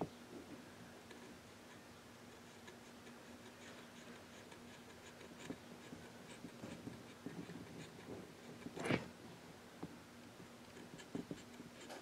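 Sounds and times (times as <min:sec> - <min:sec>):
faint steady hum: 0:00.0 - 0:12.0
hot knife scratching wood: 0:01.2 - 0:09.1, 0:10.7 - 0:12.0.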